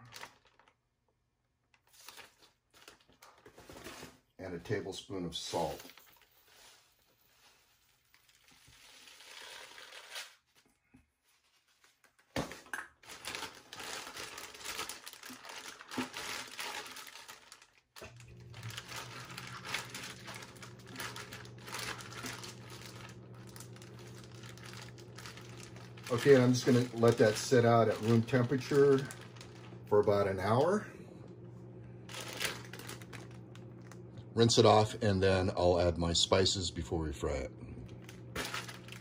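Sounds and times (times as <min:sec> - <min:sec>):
plastic bag crinkling: 0:00.0 - 0:01.0, 0:01.7 - 0:04.0, 0:05.5 - 0:10.4, 0:12.9 - 0:30.8, 0:32.0 - 0:34.8, 0:37.8 - 0:39.0
low steady hum: 0:13.1 - 0:39.0.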